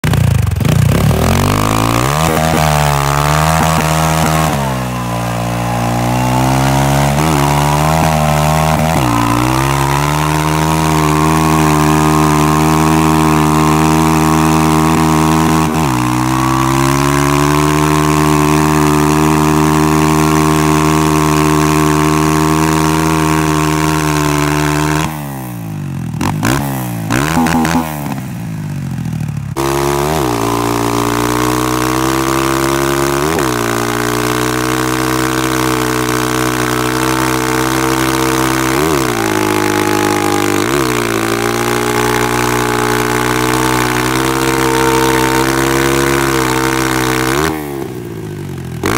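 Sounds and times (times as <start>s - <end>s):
tyre spinning on pavement: 0.0s - 23.6s
motorcycle engine revving high: 0.0s - 48.9s.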